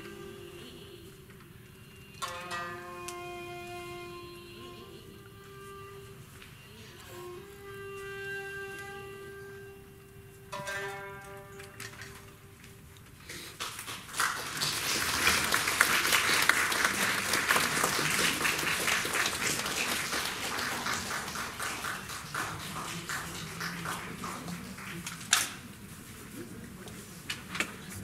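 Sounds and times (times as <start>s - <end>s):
music: 0.0s - 12.7s
audience applause: 13.4s - 25.3s.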